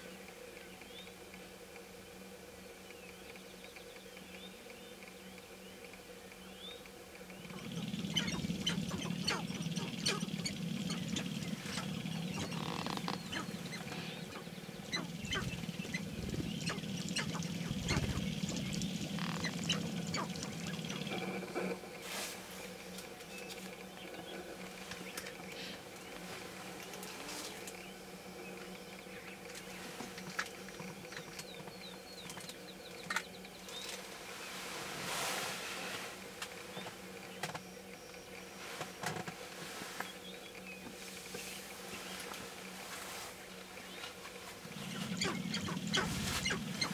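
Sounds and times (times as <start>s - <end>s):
buzzing rattle: 0.0s - 34.6s
grouse clucking and cackling: 7.4s - 21.9s, 44.7s - 46.9s.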